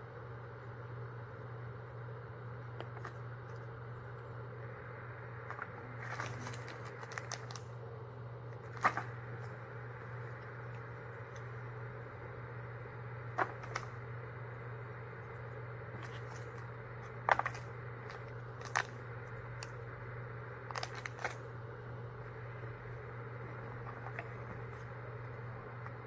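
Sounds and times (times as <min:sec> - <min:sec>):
steady low hum: 0:00.0 - 0:26.0
packaging crinkling: 0:05.4 - 0:07.8, 0:08.6 - 0:09.6, 0:13.4 - 0:14.0, 0:16.0 - 0:19.8, 0:20.7 - 0:21.5, 0:23.4 - 0:25.2.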